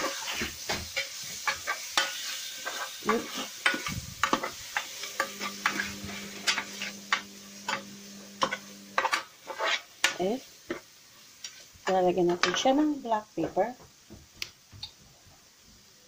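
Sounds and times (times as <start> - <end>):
utensil scraping a pot: 0.0 - 10.3
sauce sizzling in a pot: 0.0 - 16.0
low steady hum: 5.2 - 9.1.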